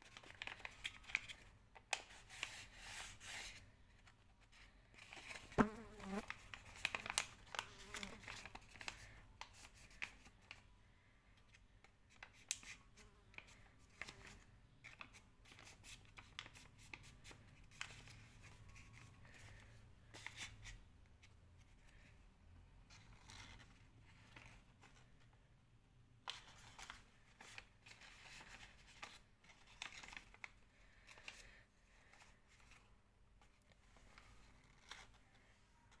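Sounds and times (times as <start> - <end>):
paper envelope crinkling: 0.0 - 2.1, 6.2 - 10.5, 26.3 - 32.8.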